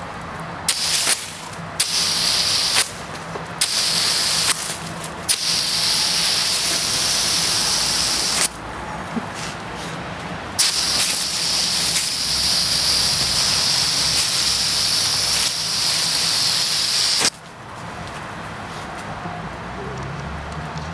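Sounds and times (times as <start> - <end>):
water jet hissing: 0.0 - 8.6, 10.6 - 17.4.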